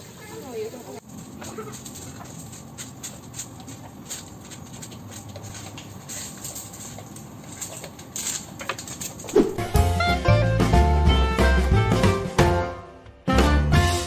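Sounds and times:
footsteps on stone path: 1.0s - 10.0s.

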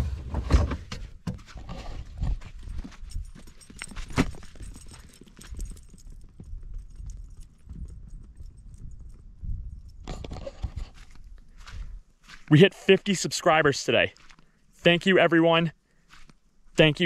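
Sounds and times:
footsteps on gravel: 1.4s - 6.0s, 10.2s - 15.3s, 16.0s - 17.0s
wind rumble on microphone: 6.4s - 11.0s.

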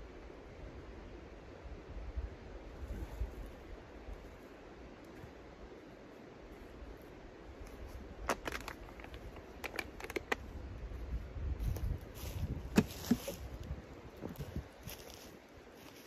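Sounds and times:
sharp clicks and crackles: 7.6s - 10.5s
footsteps on dry leaves: 11.6s - 16.0s.

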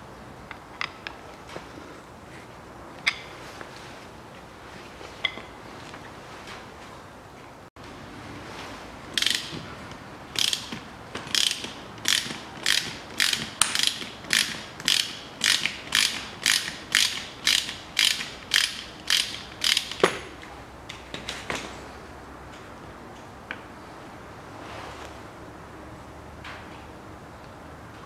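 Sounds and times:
ratchet wrench clicking: 9.2s - 9.6s, 10.3s - 20.1s.

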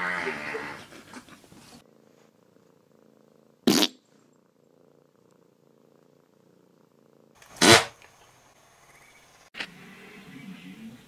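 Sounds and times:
cat purring faintly: 0.8s - 7.4s.

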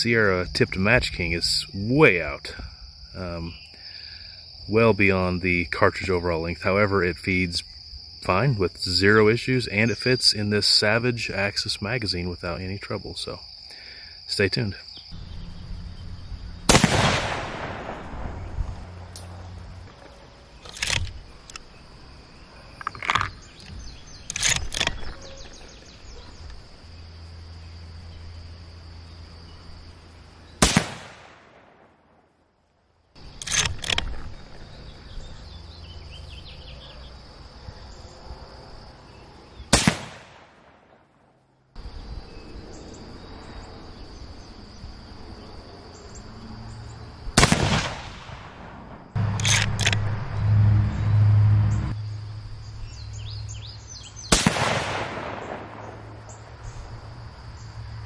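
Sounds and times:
rifle shots with echo: 16.7s - 18.6s, 30.6s - 32.0s, 39.7s - 41.0s, 47.4s - 49.9s, 54.3s - 56.2s.

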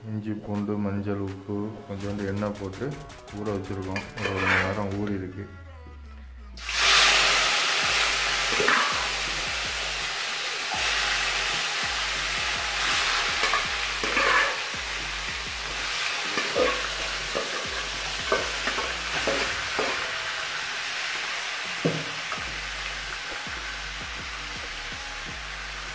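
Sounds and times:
metal ladle knocking and scraping: 4.0s - 4.9s, 13.4s - 14.6s
chicken sizzling in hot oil: 6.6s - 25.9s.

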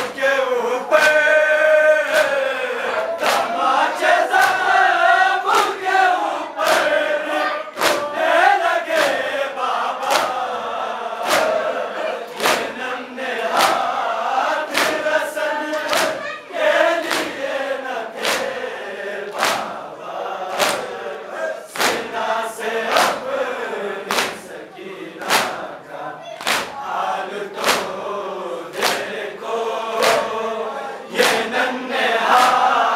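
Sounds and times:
men chanting in unison: 0.0s - 32.9s
hands slapping chests: 0.9s - 1.3s, 2.0s - 4.7s, 5.5s - 5.8s, 6.6s - 7.0s, 7.8s - 8.2s, 8.9s - 9.3s, 10.0s - 10.4s, 11.2s - 12.8s, 13.4s - 16.4s, 17.0s - 18.6s, 19.3s - 19.8s, 20.4s - 21.0s, 21.7s - 22.2s, 22.9s - 23.4s, 24.0s - 24.5s, 25.2s - 25.7s, 26.3s - 26.8s, 27.5s - 28.0s, 28.7s - 29.2s, 30.0s - 30.4s, 31.2s - 31.6s, 32.2s - 32.8s.

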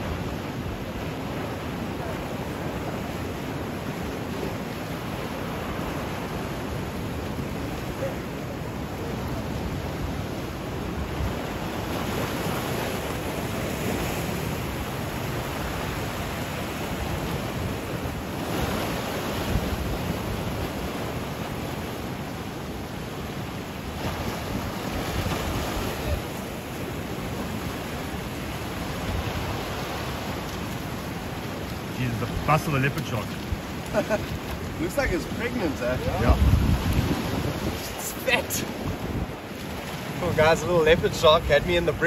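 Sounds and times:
surf washing over rocks: 0.0s - 42.0s
wind buffeting microphone: 33.2s - 42.0s.

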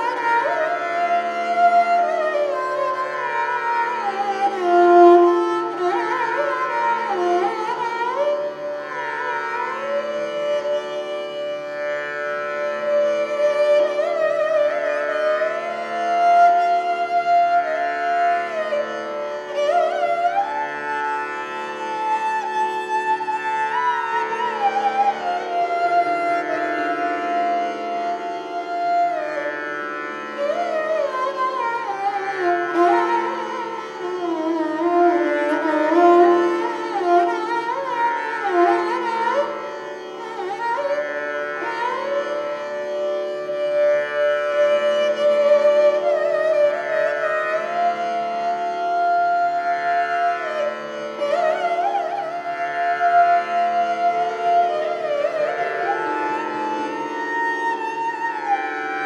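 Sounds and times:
bowed string instrument melody: 0.0s - 59.0s.

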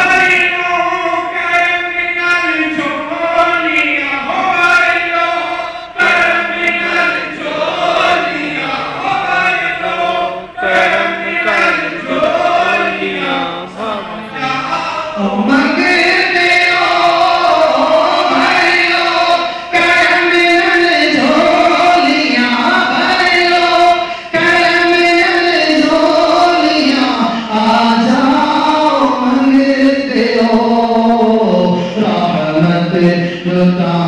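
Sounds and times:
crowd of men chanting in unison: 4.2s - 29.8s.

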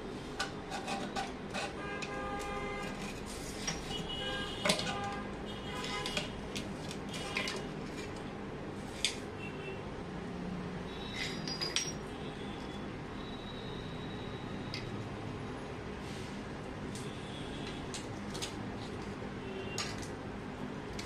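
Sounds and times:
metal tools clinking on drain: 11.1s - 12.1s.

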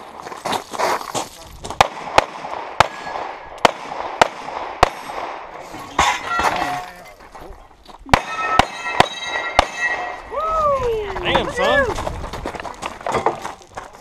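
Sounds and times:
ringing tone: 8.2s - 10.3s.

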